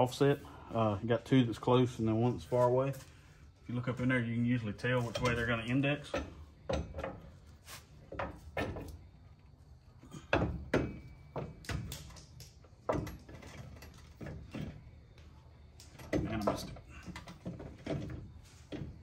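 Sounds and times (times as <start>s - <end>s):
metal clunks and knocks: 5.0s - 9.1s, 10.1s - 12.2s, 12.8s - 15.0s, 15.9s - 19.0s.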